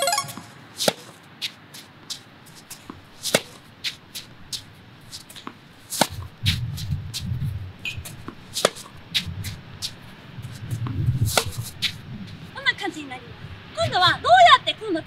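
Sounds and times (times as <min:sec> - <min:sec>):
tennis racket hitting ball: 0:00.4 - 0:01.6, 0:02.5 - 0:07.0, 0:07.8 - 0:10.0, 0:11.3 - 0:12.0
tennis balls bouncing on court: 0:02.7 - 0:06.6, 0:07.8 - 0:10.0, 0:10.8 - 0:11.6.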